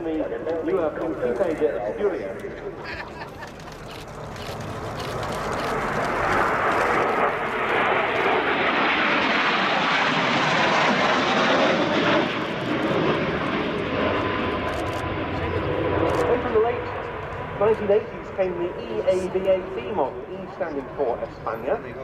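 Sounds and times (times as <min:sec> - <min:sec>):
jets flying past: 0:04.7 - 0:22.0.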